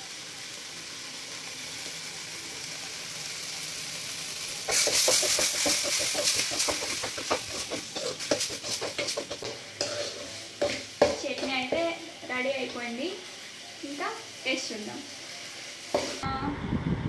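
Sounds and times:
chutney sizzling in a pan: 0.0 - 16.3
steel spoon scraping a pan: 4.7 - 13.0, 15.9 - 16.2.

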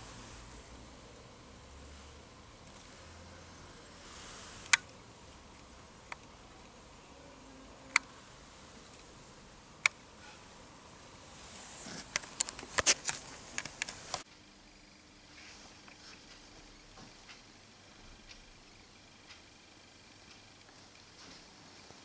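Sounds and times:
rustling: 1.8 - 6.8, 10.1 - 14.2.

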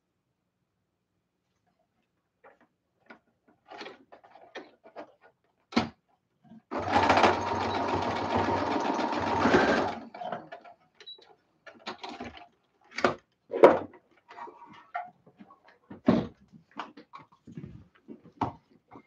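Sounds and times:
sewing machine stitching: 6.7 - 10.7.

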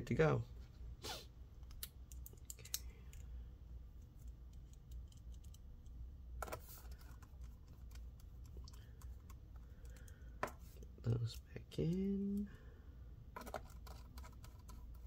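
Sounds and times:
low steady hum: 0.0 - 15.0
screwdriver and tiny screws clicking: 4.0 - 6.0.

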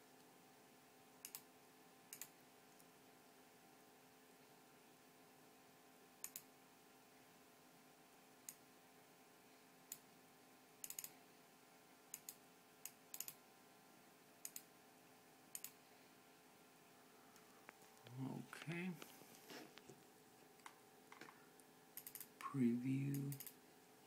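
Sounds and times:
faint hum: 0.0 - 24.0
computer mouse clicking: 1.2 - 1.5, 2.1 - 2.3, 6.2 - 6.5, 10.8 - 11.2, 12.1 - 13.4, 14.4 - 14.7, 15.5 - 15.8, 22.0 - 22.3, 23.1 - 23.6.

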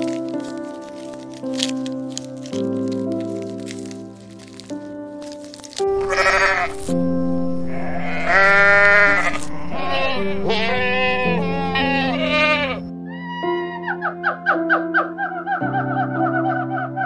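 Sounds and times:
soft piano music: 0.0 - 17.0
goats bleating: 5.9 - 6.9, 7.7 - 12.8.

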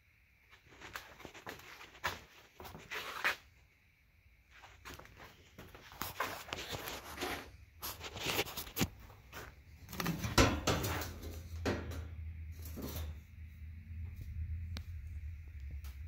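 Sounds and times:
metal grille clattering on workbench: 10.0 - 13.2.

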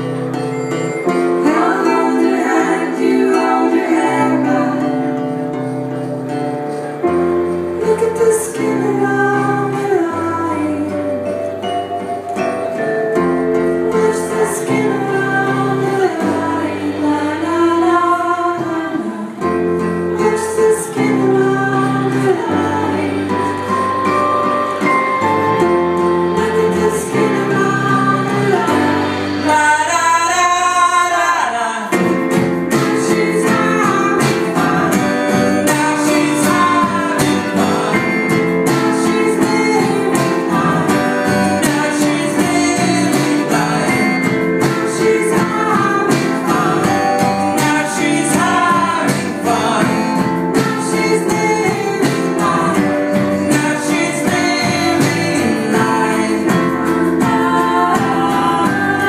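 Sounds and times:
acoustic guitar: 0.0 - 59.0
people singing: 1.0 - 11.4, 12.6 - 59.0
electric bass: 19.6 - 30.1.

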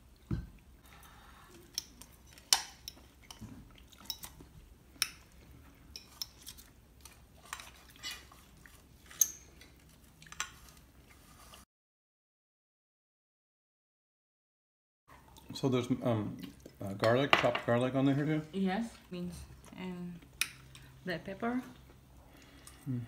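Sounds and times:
soft chewing: 0.1 - 11.6, 15.1 - 17.1, 18.9 - 21.0, 21.6 - 23.0.

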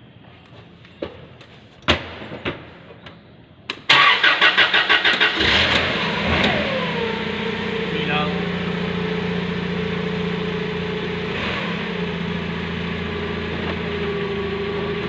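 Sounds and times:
forklift engine starting and running: 3.7 - 15.0.

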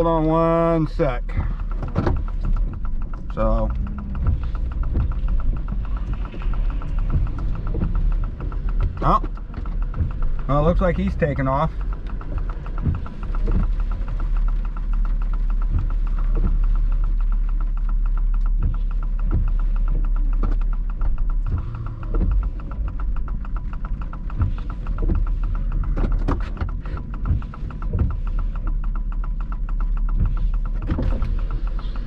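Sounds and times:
vehicle engine rumble in cabin: 0.0 - 32.0
windshield wipers on wet glass: 0.0 - 32.0
irregular knocks: 1.3 - 16.7.

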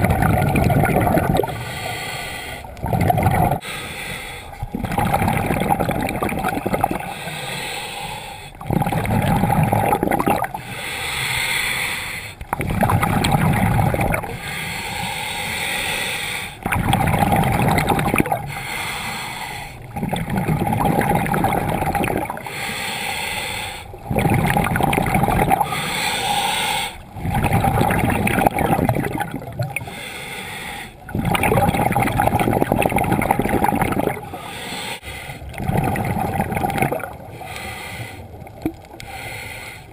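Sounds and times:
gurgling exhaled bubbles: 0.0 - 1.8, 2.6 - 3.6, 4.6 - 7.4, 8.5 - 10.7, 12.4 - 14.5, 16.6 - 18.6, 19.8 - 22.5, 23.9 - 25.8, 27.0 - 29.9, 31.0 - 34.5, 35.4 - 39.0
diver breathing through regulator: 1.1 - 17.5, 18.2 - 20.4, 21.3 - 32.5, 33.8 - 39.9.

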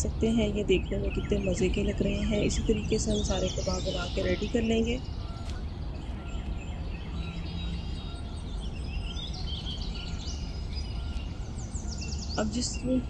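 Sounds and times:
birds chirping: 0.0 - 13.0
steady background noise: 0.0 - 13.0.

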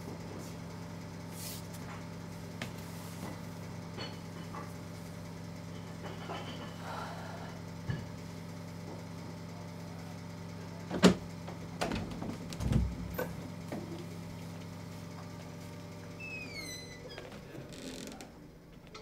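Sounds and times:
steady low hum: 0.0 - 8.9.

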